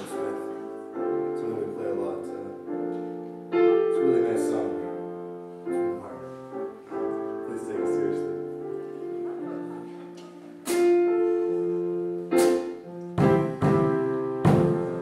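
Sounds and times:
piano chords: 0.0 - 15.0
live band music: 6.2 - 15.0.

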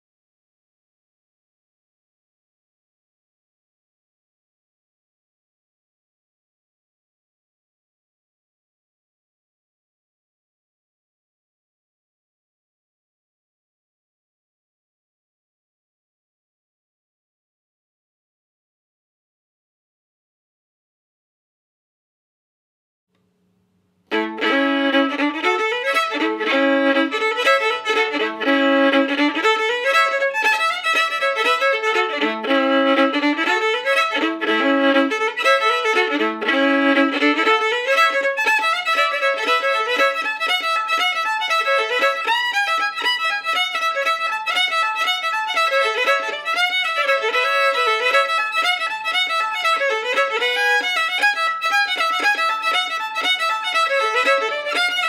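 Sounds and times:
folk fiddle tune: 24.1 - 55.0.

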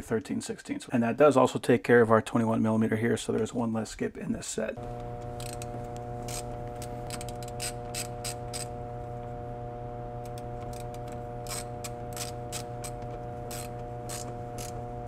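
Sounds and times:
steady hum: 4.7 - 15.0
ratchet clicking: 5.2 - 8.7, 10.2 - 14.8.

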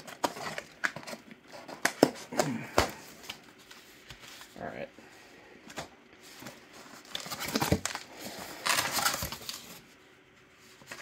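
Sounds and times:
cardboard scraping and rustling: 6.2 - 9.9.

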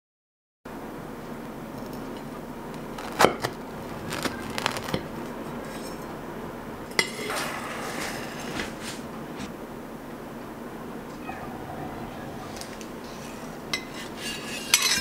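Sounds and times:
knife crunching through tart crust: 2.8 - 5.8
knife scraping: 8.0 - 9.5, 12.3 - 15.0.

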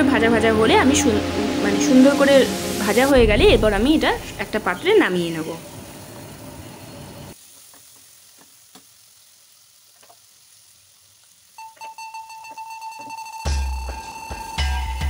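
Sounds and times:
steady high tone: 0.0 - 4.9
food frying in oil: 0.0 - 15.0
background music with a beat: 11.9 - 15.0.

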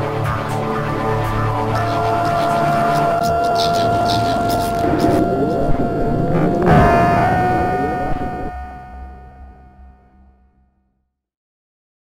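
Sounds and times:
low rumbling drone: 0.0 - 10.3
held tones: 1.6 - 9.8.

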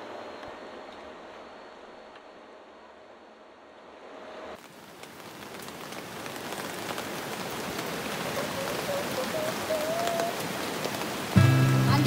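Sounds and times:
rain falling: 4.0 - 12.0
raindrops ticking: 4.9 - 12.0.

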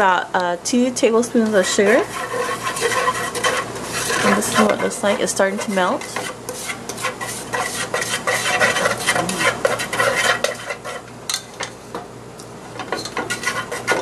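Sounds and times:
chopsticks scraping a pot: 1.5 - 11.1, 12.9 - 14.0.

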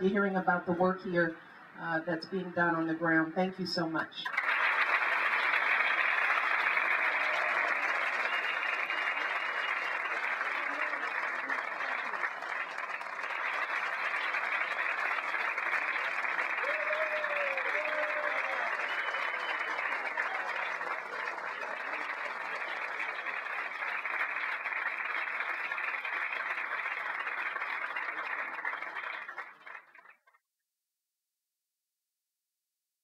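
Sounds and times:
crowd applauding: 4.2 - 30.4.

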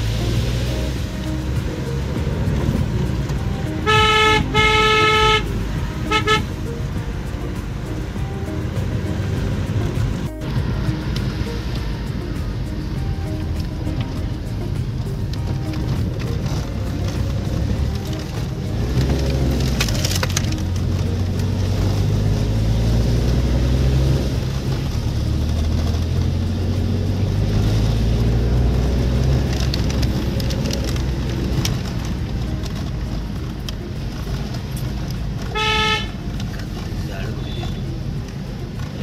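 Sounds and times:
car engine in cabin: 0.0 - 39.0
car horn toot: 3.8 - 6.6, 35.5 - 36.3.

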